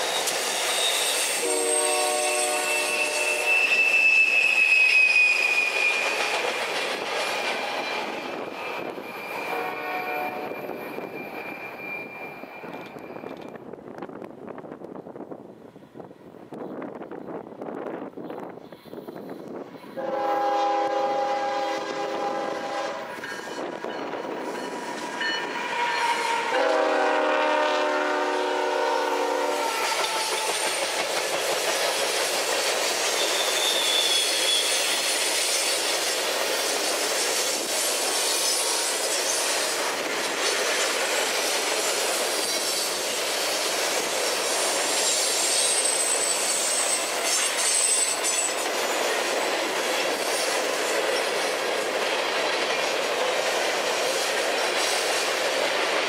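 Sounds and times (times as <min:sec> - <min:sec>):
high wheel squeals: 0:00.0 - 0:06.6, 0:07.2 - 0:13.5, 0:33.0 - 0:35.9, 0:44.4 - 0:48.6
locomotive air horn blasts: 0:01.3 - 0:04.3, 0:09.2 - 0:10.6, 0:20.0 - 0:23.2, 0:25.6 - 0:30.2.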